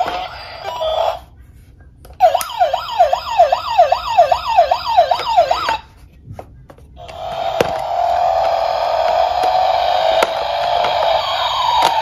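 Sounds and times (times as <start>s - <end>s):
toy police car siren: 2.2s - 5.8s, 7.0s - 12.0s.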